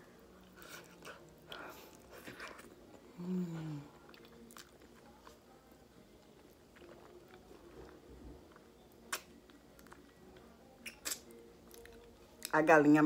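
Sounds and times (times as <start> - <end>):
chewing and sucking fingers: 4.0 - 5.5, 6.1 - 12.5
wet mouth clicks: 9.1 - 10.0, 10.8 - 11.3.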